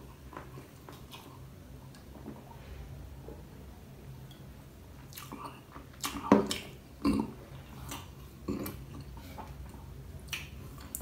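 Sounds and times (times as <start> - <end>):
person gulping and swallowing: 5.1 - 11.0.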